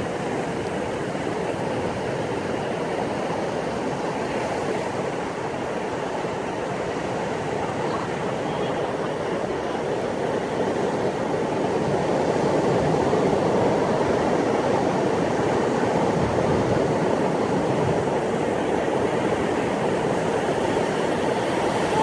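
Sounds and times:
waves breaking on sandy beach: 0:00.0 - 0:22.0.

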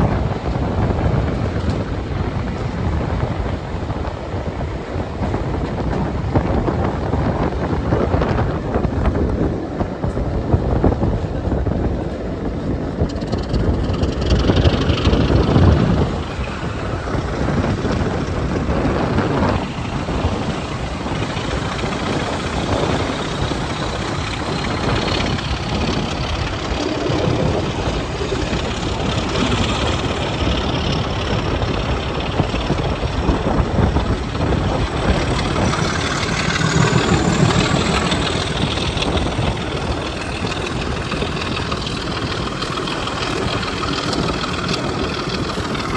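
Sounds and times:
diesel locomotives working hard: 0:00.0 - 0:45.9
train wheel noise: 0:00.0 - 0:45.9
wind: 0:00.0 - 0:45.9
whine rising in pitch: 0:13.0 - 0:45.9.

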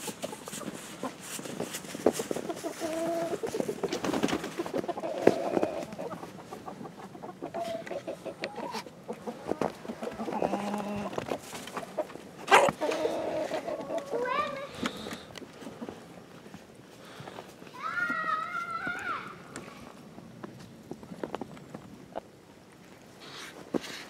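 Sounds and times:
chickens clucking: 0:00.0 - 0:16.7, 0:21.2 - 0:23.5.

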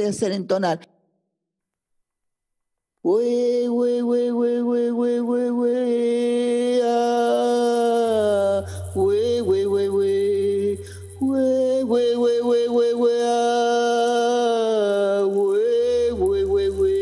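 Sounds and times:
singer breathing: 0:08.6 - 0:09.0, 0:10.8 - 0:11.2
low steady hum: 0:15.6 - 0:17.0.

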